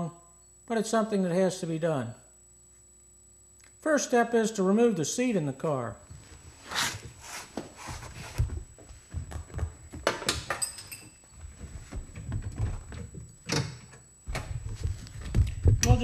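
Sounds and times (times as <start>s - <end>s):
soft knocks and rubbing: 14.4s - 15.8s.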